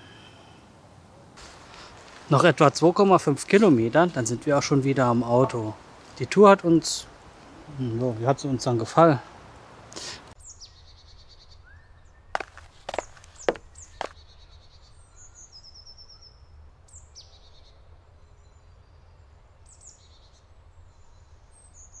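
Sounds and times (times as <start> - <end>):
songbirds chirping: 0.0 - 22.0.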